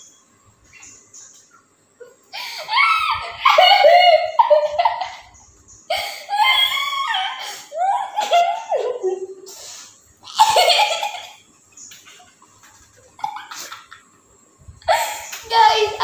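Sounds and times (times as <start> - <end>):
girl laughing: 2.0 - 9.5, 10.3 - 11.4, 13.1 - 14.1, 14.8 - 16.0.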